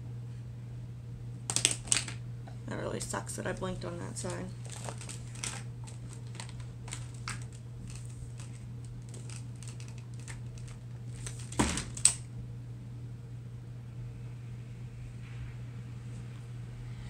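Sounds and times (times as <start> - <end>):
steady low hum: 0.0 - 17.0
small objects clicking: 1.5 - 2.2, 4.6 - 12.2.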